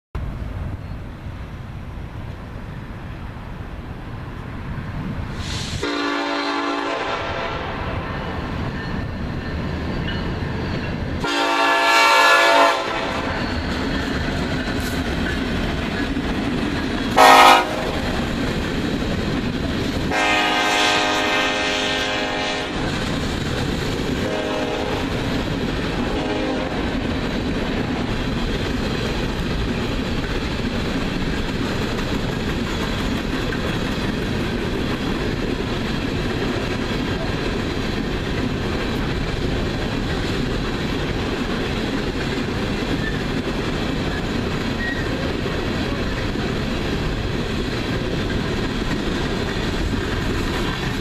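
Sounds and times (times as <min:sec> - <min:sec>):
train rumbling over rails: 0:00.2 - 0:51.0
locomotive air horn blasts: 0:05.5 - 0:08.0, 0:11.2 - 0:13.3, 0:17.2 - 0:18.1, 0:20.1 - 0:22.8, 0:24.2 - 0:25.1, 0:26.0 - 0:26.8.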